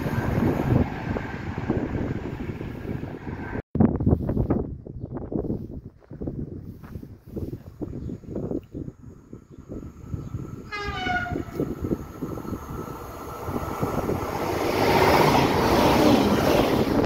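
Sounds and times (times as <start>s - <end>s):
train passing at speed: 0.0s - 3.6s, 9.1s - 17.0s
train horn blast: 10.6s - 11.7s.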